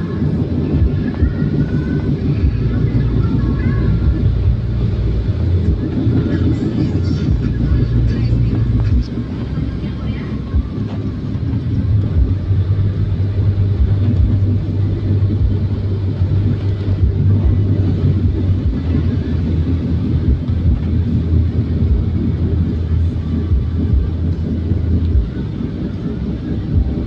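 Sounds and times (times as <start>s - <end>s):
car engine and road noise: 0.0s - 27.0s.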